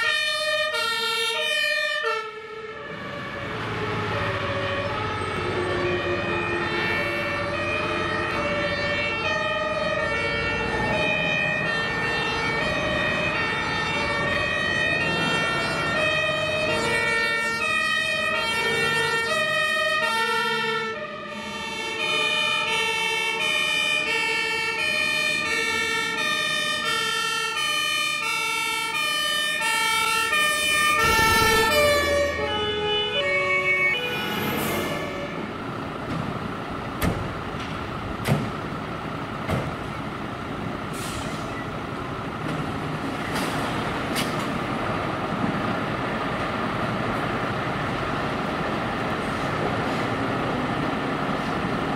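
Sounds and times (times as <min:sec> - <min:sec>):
two-tone fire truck sirens: 0:00.0 - 0:51.9
loud low burst: 0:30.9 - 0:32.7.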